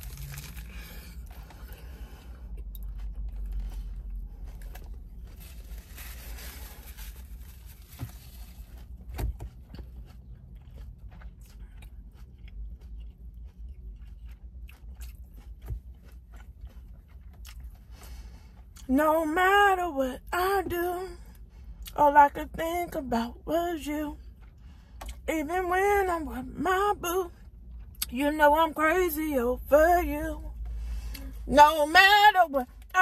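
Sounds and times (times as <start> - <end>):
lettuce crunching: 0.0 - 18.9
person chewing crunchy food: 0.0 - 19.5, 24.2 - 29.0.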